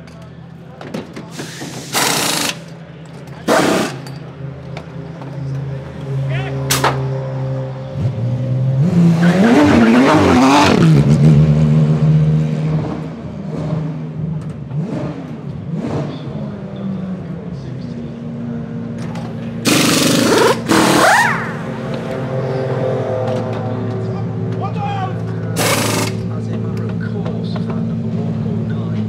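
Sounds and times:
race car engine idling and revving: 0:00.0 - 0:29.0
pneumatic wheel guns: 0:01.2 - 0:02.8, 0:03.4 - 0:04.2, 0:19.6 - 0:21.6, 0:25.6 - 0:26.3.

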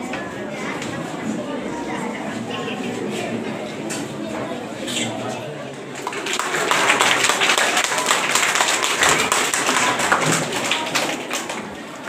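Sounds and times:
audience clapping: 0:05.9 - 0:12.0.

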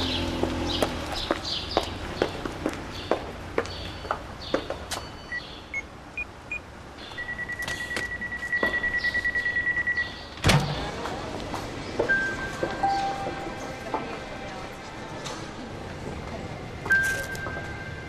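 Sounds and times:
high heels clicking on pavement: 0:00.0 - 0:05.1
keypad electronic beeps: 0:07.2 - 0:10.2.

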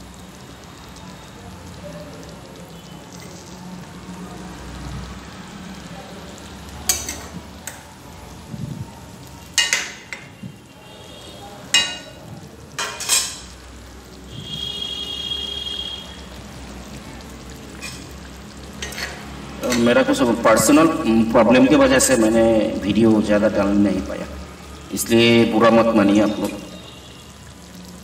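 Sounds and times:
low frying noise: 0:00.0 - 0:28.0
metal spatula clinking against pan: 0:06.9 - 0:07.8, 0:09.6 - 0:10.4, 0:11.7 - 0:12.2, 0:12.8 - 0:13.6, 0:18.8 - 0:19.9.

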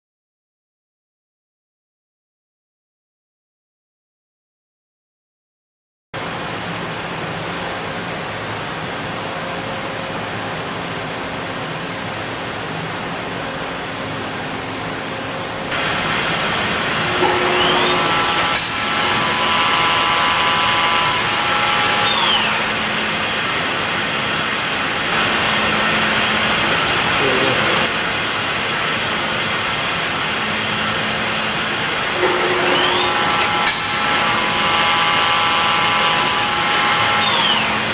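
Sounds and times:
machine shop hum: 0:06.2 - 0:37.9
machine spindle whine: 0:15.7 - 0:37.9.

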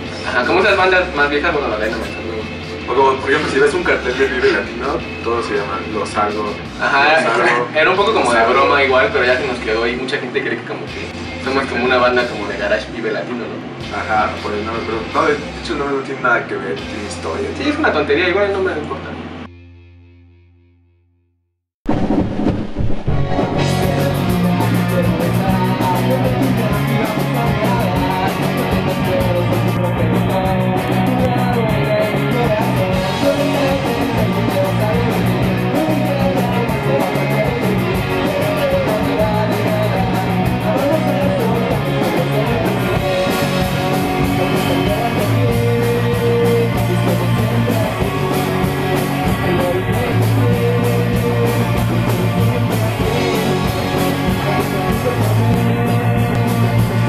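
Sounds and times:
rock band playing: 0:00.0 - 0:10.0, 0:10.8 - 0:12.6, 0:22.6 - 0:57.0
man singing: 0:23.6 - 0:57.0.

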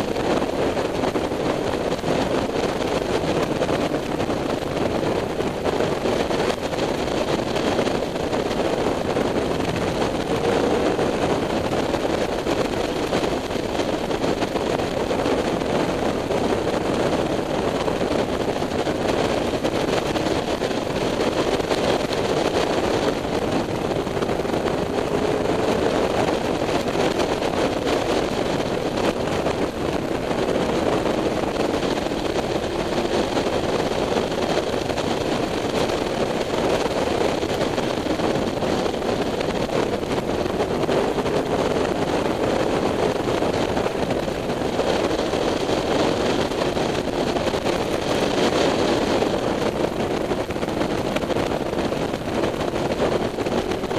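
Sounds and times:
wind noise on microphone: 0:00.0 - 0:53.9
motorcycle engine running: 0:06.9 - 0:18.4.

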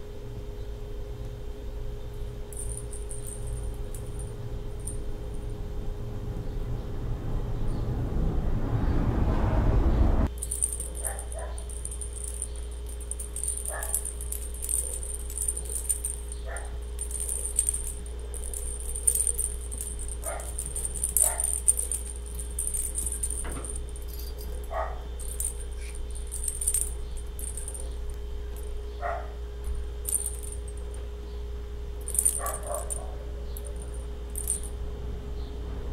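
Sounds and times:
small bells jingling: 0:02.2 - 0:05.8, 0:10.3 - 0:31.1, 0:31.9 - 0:34.9
rushing noise: 0:07.0 - 0:10.3.

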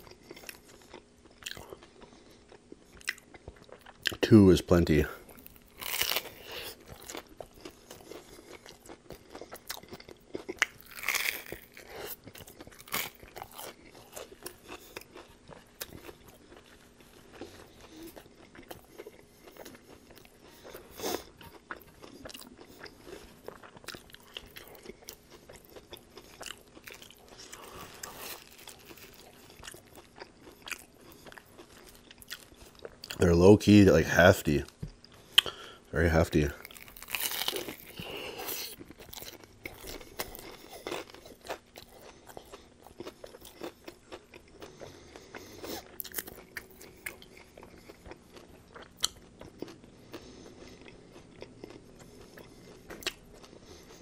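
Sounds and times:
chewing and crunching food: 0:00.0 - 0:54.0
loud crunchy bites: 0:05.6 - 0:15.2, 0:36.4 - 0:43.9.

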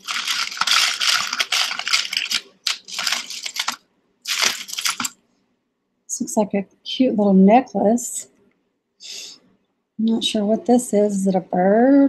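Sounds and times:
jewelry clinking and rattling: 0:00.0 - 0:05.2.

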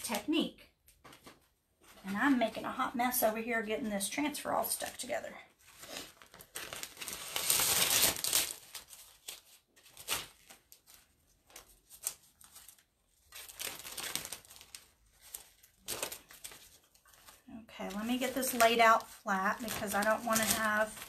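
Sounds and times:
transfer sheet peeling and crinkling: 0:04.8 - 0:21.0.

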